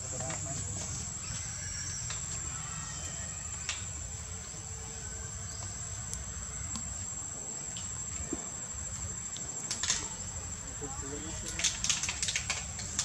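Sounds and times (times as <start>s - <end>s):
faint clicks: 9.3s - 10.2s, 11.4s - 13.0s.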